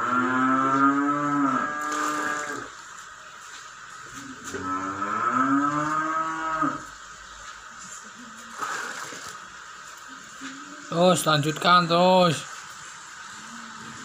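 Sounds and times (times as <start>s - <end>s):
cow mooing: 0.0s - 2.7s, 4.4s - 6.9s.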